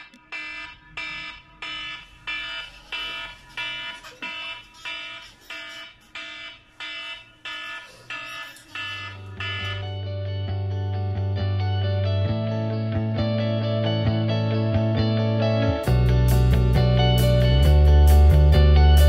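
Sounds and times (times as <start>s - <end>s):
phone alarm electronic chime: 0.0s - 10.1s
music with deep bass: 9.2s - 19.0s.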